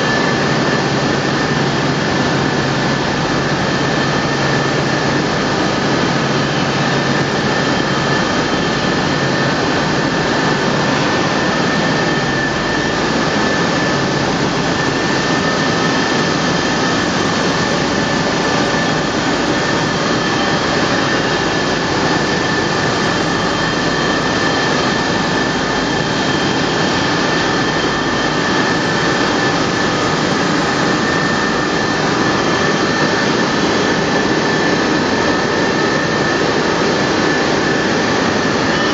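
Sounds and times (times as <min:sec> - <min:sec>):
steady high-pitched whine: 0:00.0 - 0:38.9
wire coiling machine running: 0:00.0 - 0:38.9.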